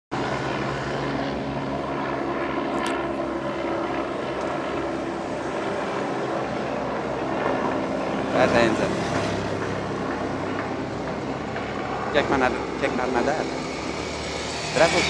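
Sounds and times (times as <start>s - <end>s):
engine drone: 0.2s - 15.0s.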